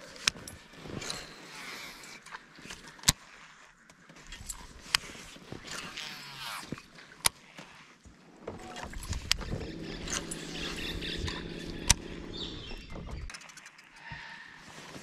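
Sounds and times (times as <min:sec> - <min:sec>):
electric trolling motor humming: 0:08.5 - 0:13.3
sharp clicks: 0:08.6 - 0:13.8.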